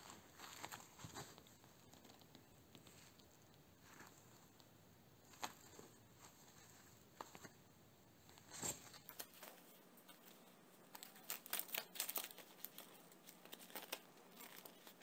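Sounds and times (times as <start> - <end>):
rubber gloves rustling: 0.0 - 15.0
plastic strip crinkling: 8.6 - 15.0.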